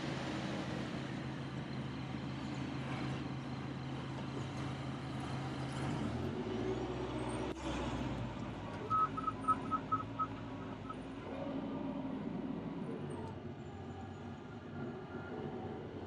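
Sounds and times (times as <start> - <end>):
bulldozer diesel engine running: 0.0 - 14.7
high-pitched beeps: 8.9 - 11.0.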